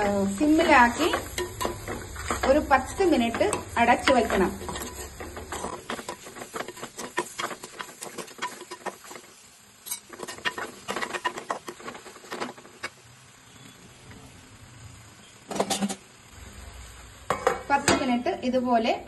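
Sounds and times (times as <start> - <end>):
wooden spatula scraping clay pot: 0.0 - 9.3, 9.9 - 12.6.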